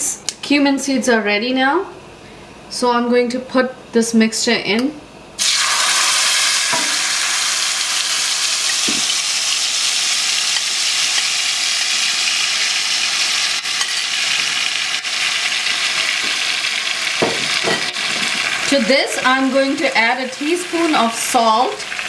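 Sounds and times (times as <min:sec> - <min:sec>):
puree sizzling in hot oil: 0:05.4 - 0:22.0.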